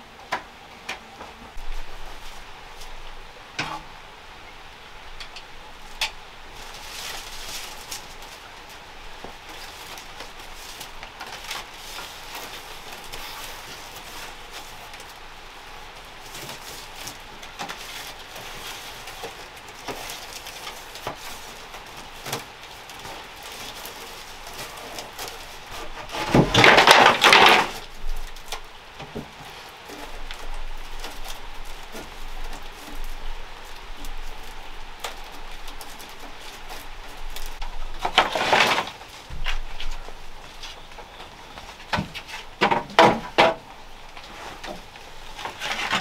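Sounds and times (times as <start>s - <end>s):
steady background hiss: 0.0s - 46.0s
bamboo pieces knocking: 16.4s - 33.0s, 35.0s - 46.0s.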